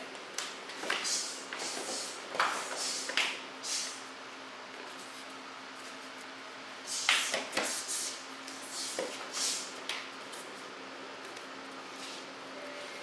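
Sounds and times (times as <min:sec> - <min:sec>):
low room hum: 0:00.0 - 0:13.0
karate swishes and slaps: 0:00.8 - 0:03.4, 0:07.0 - 0:10.5
footwork on floor: 0:07.0 - 0:13.0.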